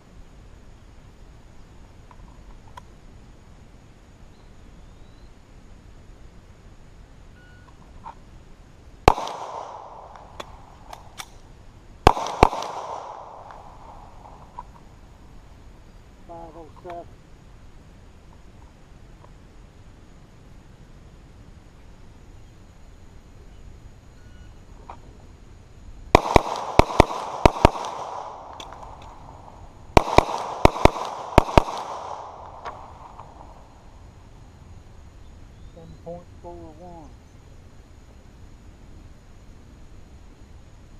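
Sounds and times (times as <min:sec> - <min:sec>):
pistol shots with echo: 0:09.0 - 0:11.3, 0:12.0 - 0:14.4, 0:26.1 - 0:29.4, 0:30.0 - 0:33.6.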